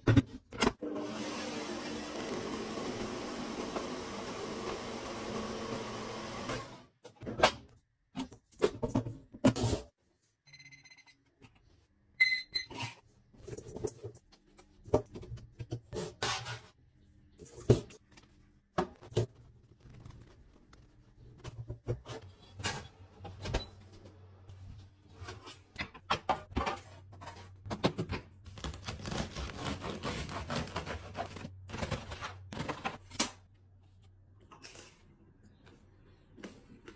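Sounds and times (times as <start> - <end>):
bread knife sawing crust: 28.9 - 31.2.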